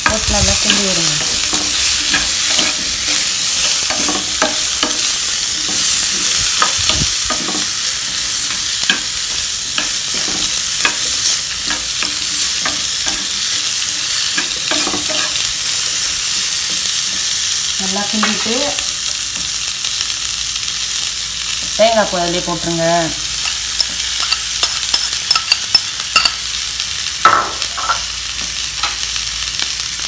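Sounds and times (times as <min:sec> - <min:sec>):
food sizzling in oil: 0:00.0 - 0:30.0
spoon scraping pan: 0:09.7 - 0:15.5.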